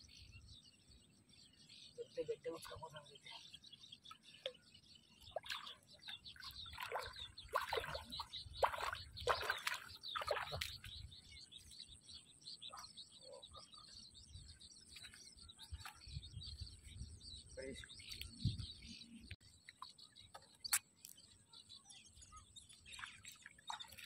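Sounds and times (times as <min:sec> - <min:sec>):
faint bird chirps: 0:00.0 - 0:24.0
feet splashing through water: 0:05.2 - 0:11.3, 0:22.9 - 0:24.0.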